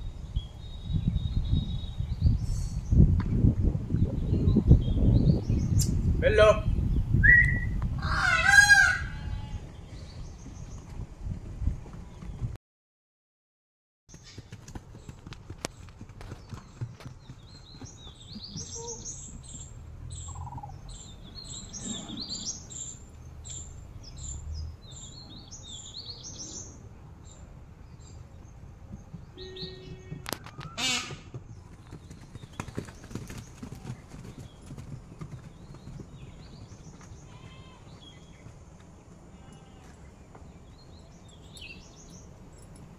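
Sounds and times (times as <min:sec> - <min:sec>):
hooves thudding on grass: 0:14.1 - 0:20.0, 0:27.8 - 0:40.7
bird chirping: 0:14.2 - 0:38.6, 0:39.6 - 0:42.9.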